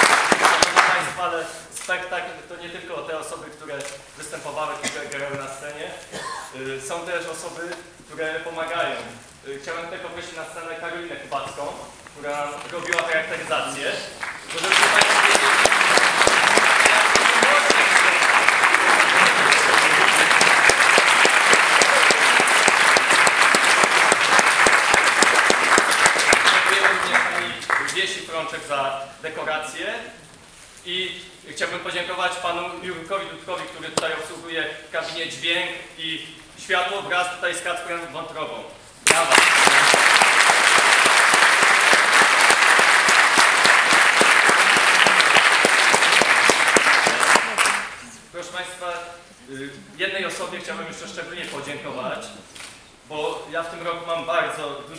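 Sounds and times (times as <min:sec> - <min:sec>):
audience applauding: 0:00.0 - 0:01.2, 0:14.1 - 0:28.2, 0:39.0 - 0:48.1.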